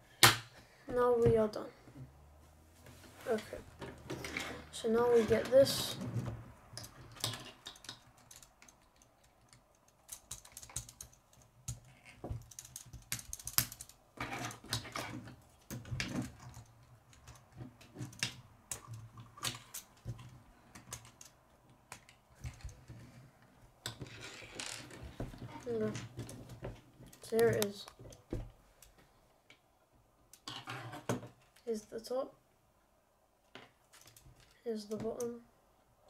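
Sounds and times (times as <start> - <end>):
plastic pieces clicking together: 6.8 - 22.7.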